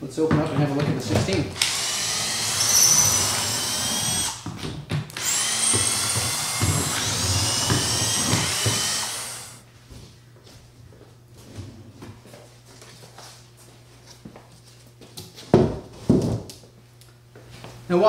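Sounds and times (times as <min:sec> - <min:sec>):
power drill whining: 0:01.6 - 0:04.5, 0:05.1 - 0:09.6.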